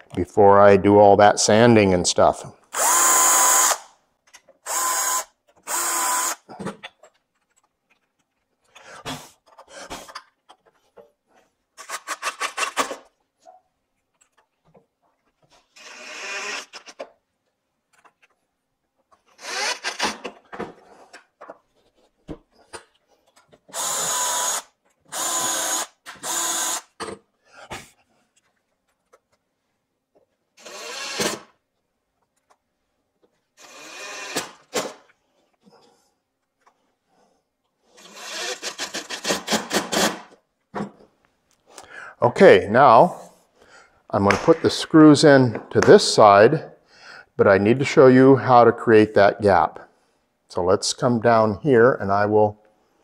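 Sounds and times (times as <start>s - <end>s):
cordless drill driving screws: 2.7s - 3.9s, 4.6s - 6.5s, 15.7s - 17.0s, 19.3s - 20.3s, 23.7s - 27.0s, 30.6s - 31.5s, 33.6s - 35.0s, 38.0s - 40.4s
handling hinge and screws: 5.5s - 15.9s.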